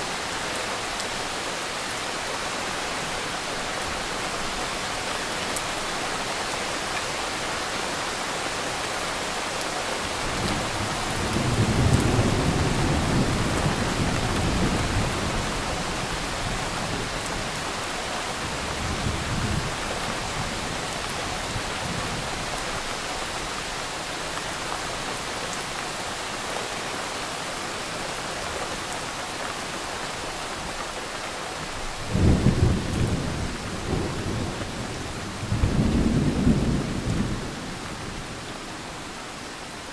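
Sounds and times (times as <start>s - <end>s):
steady rain: 0.0s - 39.9s
rolling thunder: 32.1s - 38.3s.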